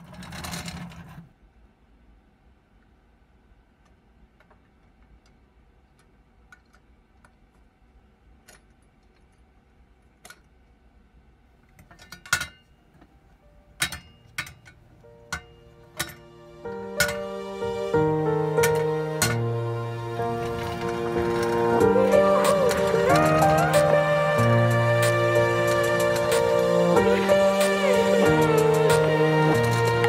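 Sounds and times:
music: 15.0 - 30.0.

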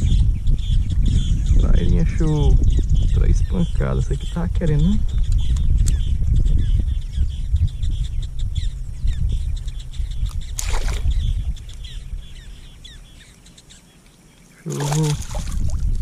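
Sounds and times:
birds chirping: 0.0 - 16.0
fish splashing at water surface: 10.6 - 11.1, 14.7 - 15.8.

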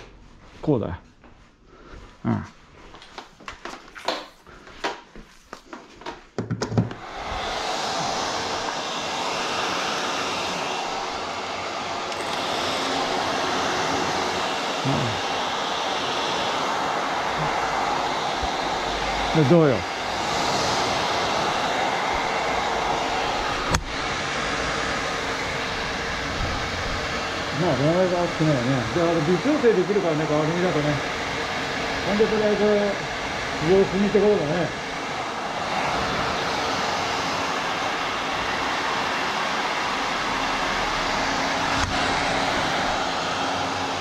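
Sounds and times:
hair dryers blowing: 2.8 - 44.0
knock: 6.4 - 7.0.

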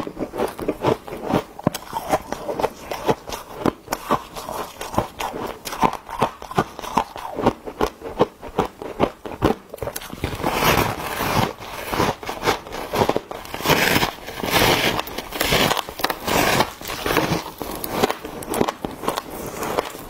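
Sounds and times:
frost being chewed with crunches: 0.0 - 20.0.

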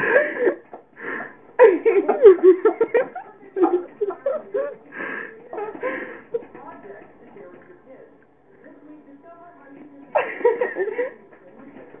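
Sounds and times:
person laughing: 1.6 - 4.8.

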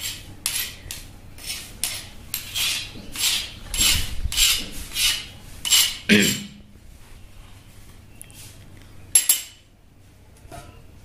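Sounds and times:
spoon scraping on grinding board: 0.0 - 6.6.

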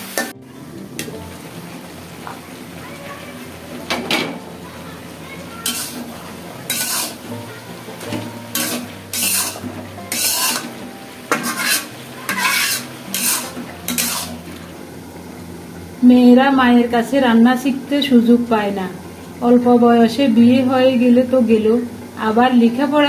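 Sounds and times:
metal spatula scraping a pan: 5.6 - 14.6.

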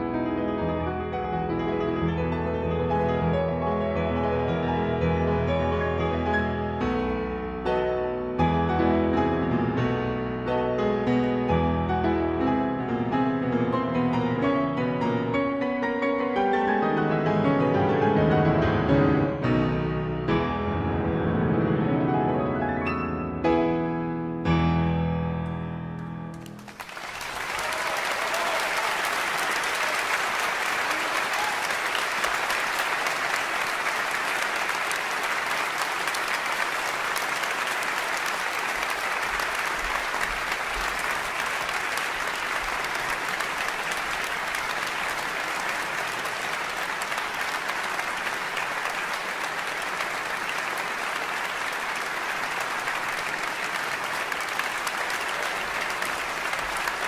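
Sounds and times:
audience applauding: 26.3 - 57.0.

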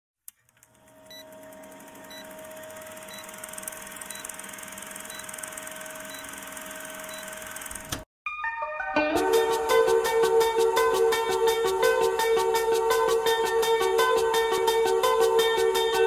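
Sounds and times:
film projector whirring: 0.5 - 8.0
music: 8.3 - 16.0.

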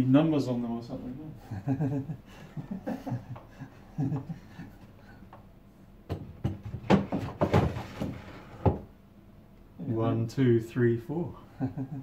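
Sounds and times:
wooden drawer knocking and scraping: 6.1 - 8.9.

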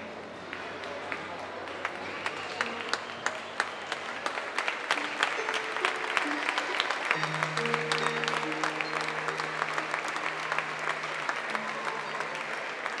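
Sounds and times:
audience applauding: 0.0 - 13.0
music with held notes: 4.6 - 13.0.

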